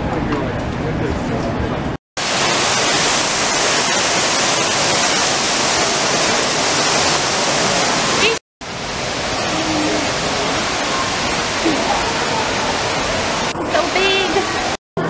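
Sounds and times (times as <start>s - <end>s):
waterfall splashing: 2.2s - 14.8s.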